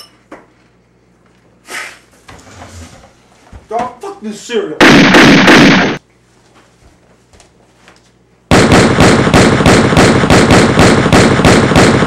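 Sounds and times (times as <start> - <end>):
rapid gunfire: 4.8 - 6.0, 8.5 - 12.0.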